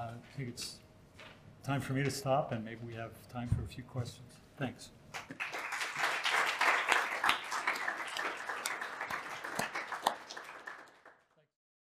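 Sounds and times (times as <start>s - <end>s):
audience applauding: 5.2s - 11.4s.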